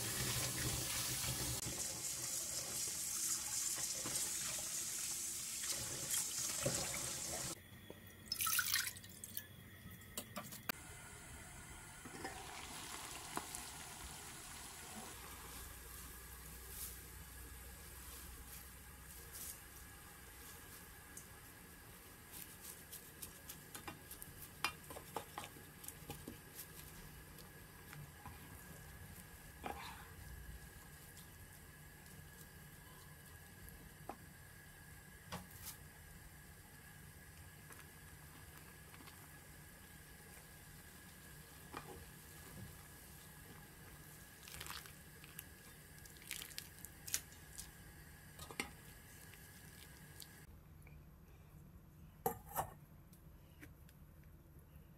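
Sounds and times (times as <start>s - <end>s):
water splashes and drips: 44.4s - 47.8s.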